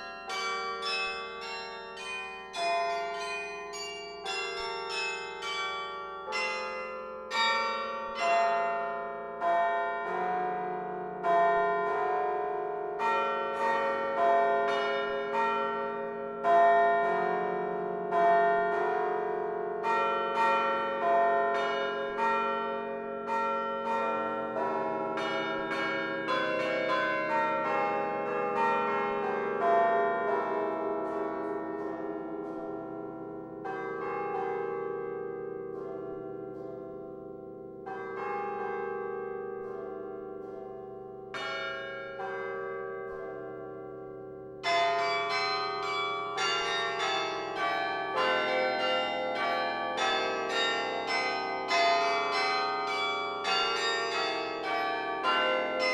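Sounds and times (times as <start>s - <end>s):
carillon bells playing: 0.0s - 5.6s.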